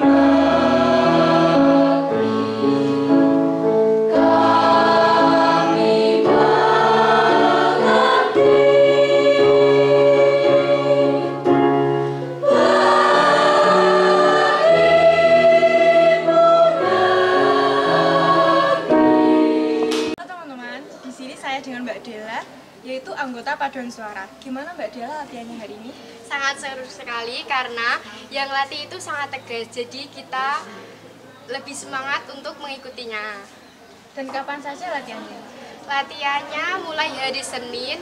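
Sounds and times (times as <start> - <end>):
children's choir singing chords: 0.0 - 20.2.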